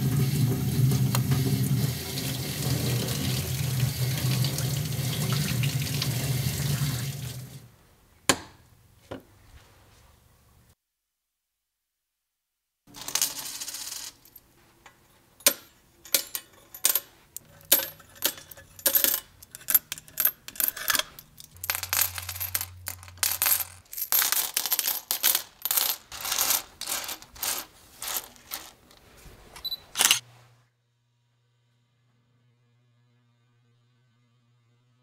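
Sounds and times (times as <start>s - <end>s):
coins clinking into piggy bank: 12.9s - 14.4s, 15.4s - 28.9s, 30.0s - 30.2s.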